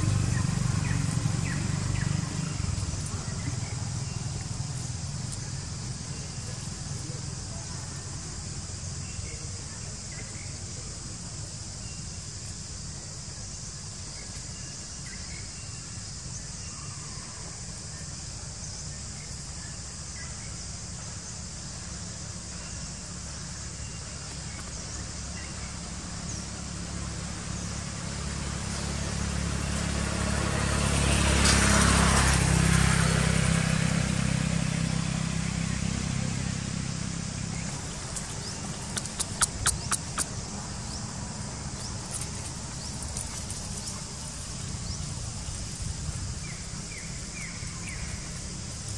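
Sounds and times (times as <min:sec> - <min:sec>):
motor vehicle passing by: 0:00.0 - 0:09.3, 0:25.1 - 0:48.9
insects droning: 0:00.0 - 0:48.9.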